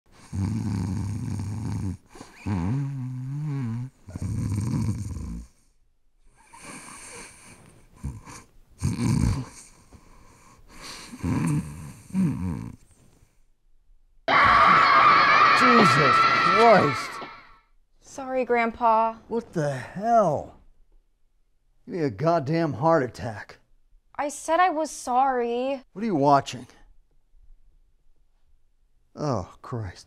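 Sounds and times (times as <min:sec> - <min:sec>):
man snoring: 0:00.2 - 0:05.6, 0:06.4 - 0:12.8.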